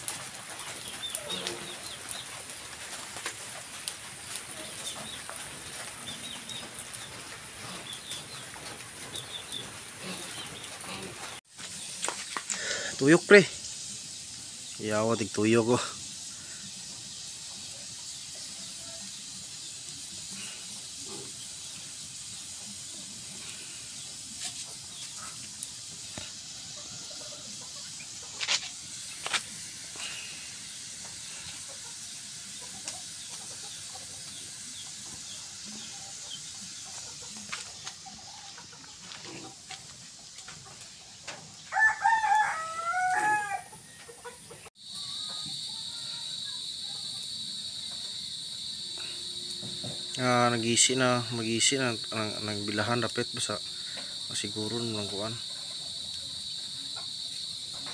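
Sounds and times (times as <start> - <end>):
steady low hiss: 0.0 - 45.8, 46.6 - 57.9
rooster crowing: 41.6 - 44.4.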